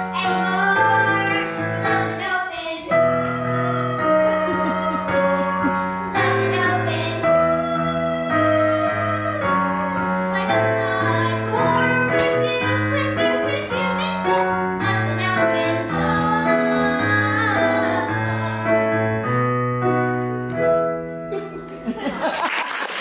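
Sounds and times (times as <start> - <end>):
piano chords and bass notes: 0.0 - 22.4
person singing: 0.5 - 14.2.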